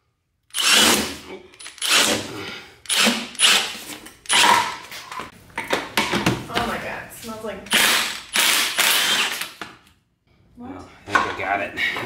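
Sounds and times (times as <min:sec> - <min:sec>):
impact wrench hammering: 0:02.9 - 0:04.8, 0:07.7 - 0:09.6.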